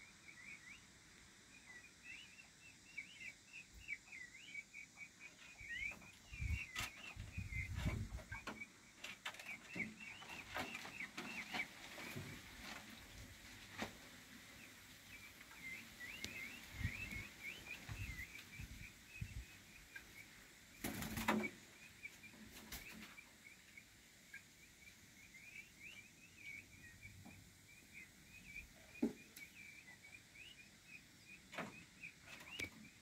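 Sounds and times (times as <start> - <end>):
high bird chirping: 1.6 - 8.7, 15.2 - 23.0
wings flapping loudly: 20.8 - 21.5.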